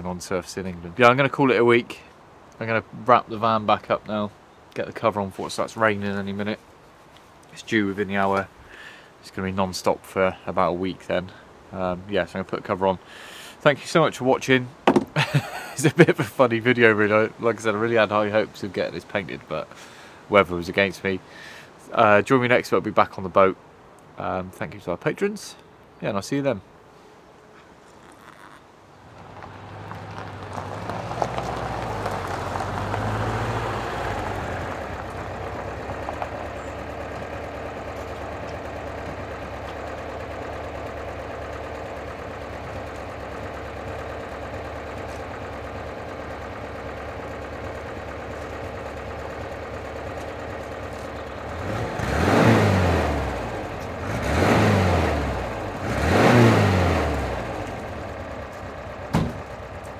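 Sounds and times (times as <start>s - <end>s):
van engine idling and revving: 29.0s - 59.9s.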